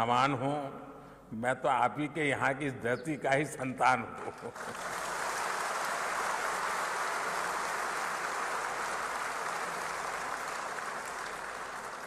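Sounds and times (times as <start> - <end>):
large audience applauding: 4.6 - 12.0.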